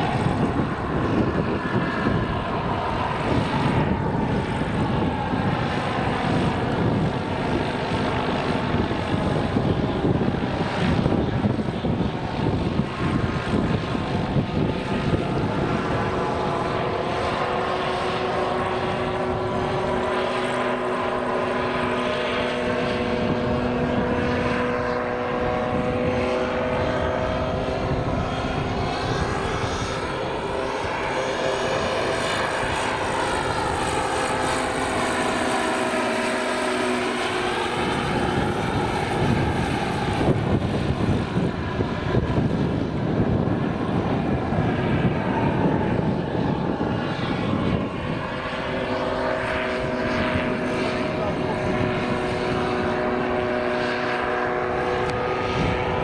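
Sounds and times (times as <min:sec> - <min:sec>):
model helicopter turbine whine: 0:00.0 - 0:56.0.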